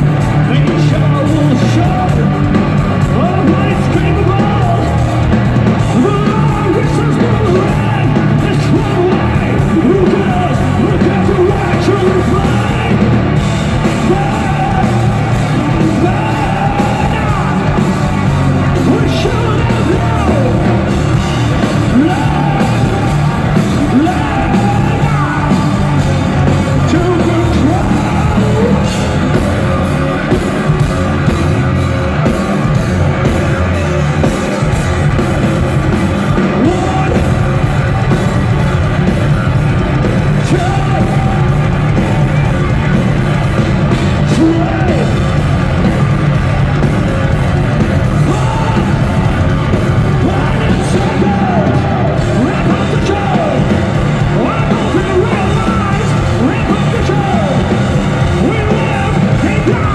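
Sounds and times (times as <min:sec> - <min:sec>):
singer shouting vocals: 0:00.0 - 0:05.2, 0:05.8 - 0:30.4, 0:36.3 - 0:38.7, 0:39.4 - 0:43.0, 0:44.0 - 0:45.4, 0:48.0 - 0:59.9
bass guitar: 0:00.0 - 0:59.9
distorted electric guitars: 0:00.0 - 0:59.9
drums: 0:00.0 - 0:59.9.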